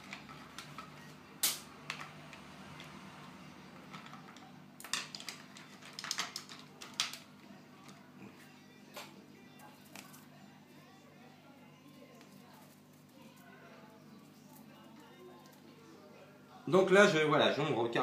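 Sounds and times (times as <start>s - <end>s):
paintbrushes clicking and clattering: 3.8s - 8.0s.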